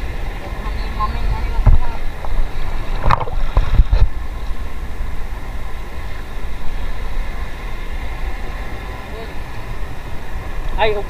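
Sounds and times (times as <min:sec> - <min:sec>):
wind buffeting microphone: 0:00.0 - 0:11.0
water splashes and knocks: 0:01.2 - 0:04.6.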